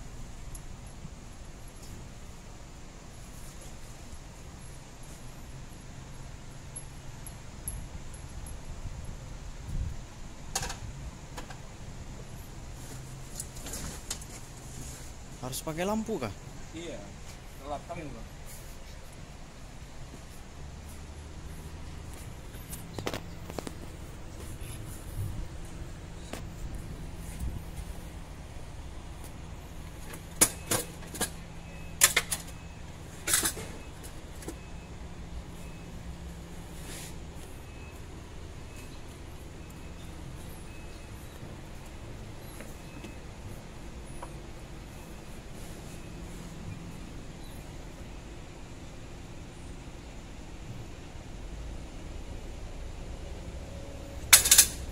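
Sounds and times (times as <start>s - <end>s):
steady low hum: 0.0s - 54.9s
metal tools clinking: 54.3s - 54.8s.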